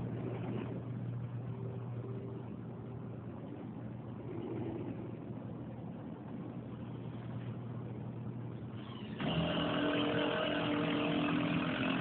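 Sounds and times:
construction machinery engine: 8.8s - 12.0s.

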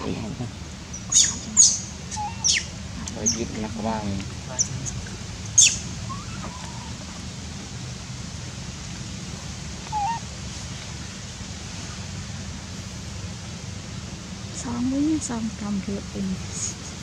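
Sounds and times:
low outdoor rumble: 0.0s - 17.0s
pitch-bending animal calls: 0.9s - 3.5s, 4.6s - 7.0s, 9.8s - 10.3s.

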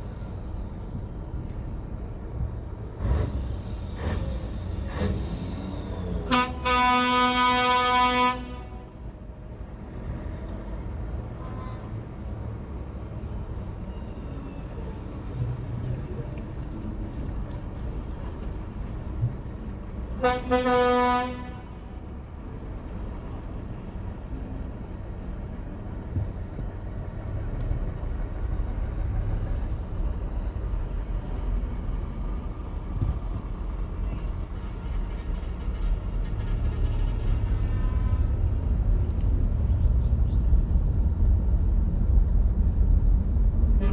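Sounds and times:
engine rumble and road noise: 0.0s - 43.9s
heavy trucks driving past: 0.0s - 43.9s
truck air horn: 6.2s - 8.9s, 11.3s - 12.0s, 20.2s - 21.8s, 37.3s - 38.5s.

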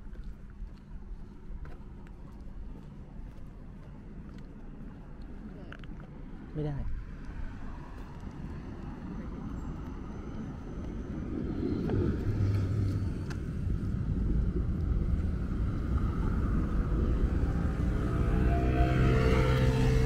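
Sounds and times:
city street traffic rumble: 0.0s - 20.0s
tram passing: 7.1s - 20.0s.

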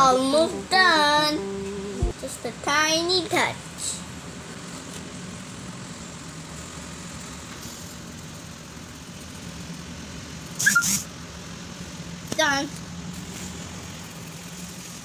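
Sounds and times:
low motor hum: 0.0s - 10.6s.

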